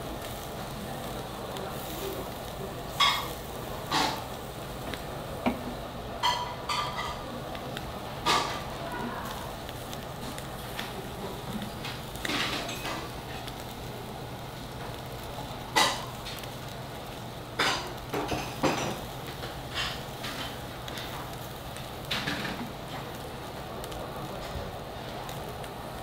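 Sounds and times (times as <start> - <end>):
tongs clinking on wire grill: 1.8 - 4.3, 6.2 - 7.2, 11.8 - 13.6, 15.7 - 16.5, 17.6 - 21.2.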